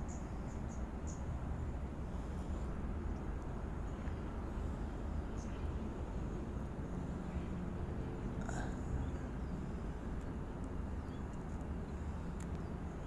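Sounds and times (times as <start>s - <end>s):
low outdoor rumble: 0.0s - 13.0s
faint clicks: 10.2s - 12.7s.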